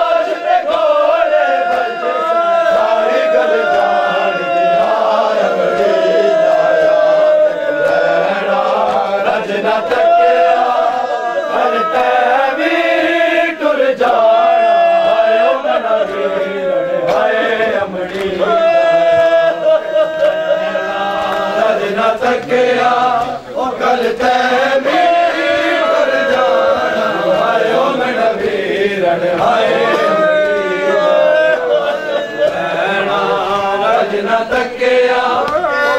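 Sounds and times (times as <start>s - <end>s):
men chanting a lament: 0.0s - 35.9s.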